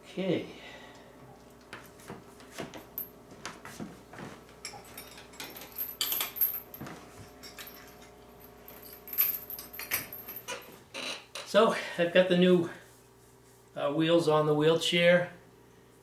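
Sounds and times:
metal chains clinking and jangling: 4.6s - 10.8s.

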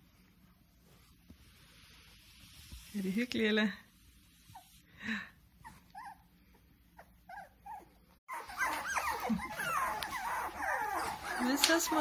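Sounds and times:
puppies whining and yipping: 5.6s - 12.0s.

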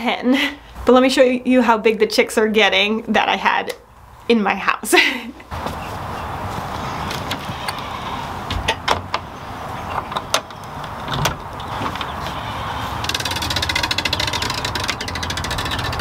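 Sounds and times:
latch and door clicks and knocks: 8.5s - 9.3s, 9.9s - 12.2s
fast rattling buzz: 12.4s - 16.0s.

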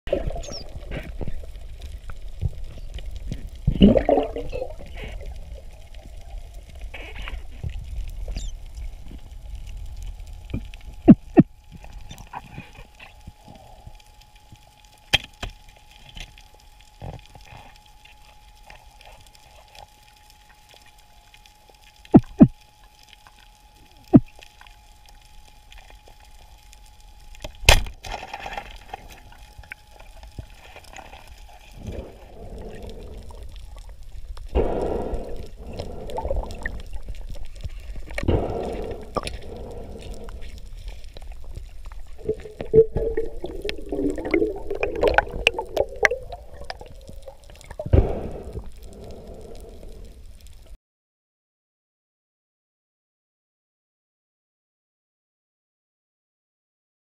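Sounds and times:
bubbling gurgles: 0.1s - 1.7s, 2.4s - 7.0s, 31.7s - 50.1s
low underwater rumble: 0.1s - 15.0s, 23.6s - 50.8s
faint steady whine: 0.1s - 50.8s.

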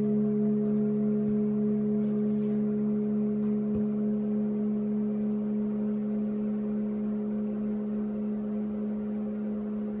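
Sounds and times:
steady hum: 0.0s - 10.0s
faint high chirps: 8.1s - 9.3s.

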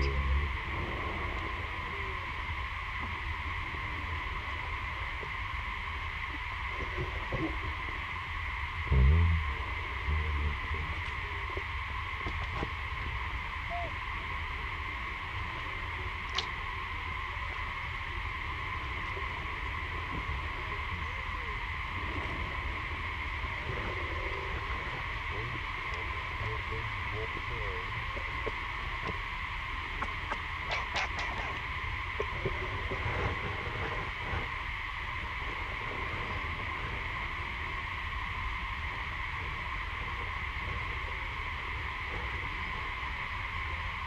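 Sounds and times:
high-pitched insect-like drone: 0.0s - 0.6s
low rumble: 0.0s - 2.4s, 6.6s - 37.8s
insect drone: 0.0s - 44.0s.

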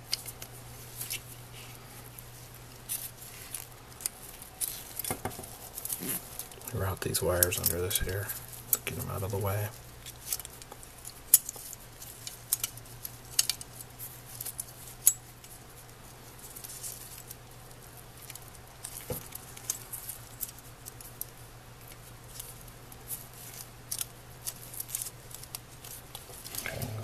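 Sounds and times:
faint low hum: 0.0s - 27.0s
small clicks and taps of parts: 10.0s - 13.8s.

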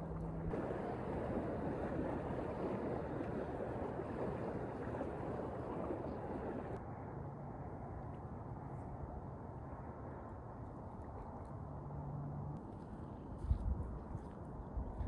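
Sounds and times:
wind noise on microphone: 0.0s - 6.8s, 13.3s - 15.0s.

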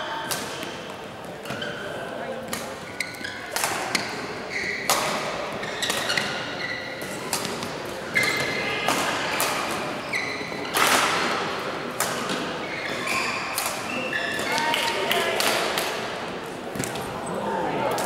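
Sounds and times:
shoes squeaking on court floor: 1.3s - 8.7s, 9.7s - 11.4s, 12.2s - 14.7s
rackets striking shuttlecock: 7.0s - 9.9s.

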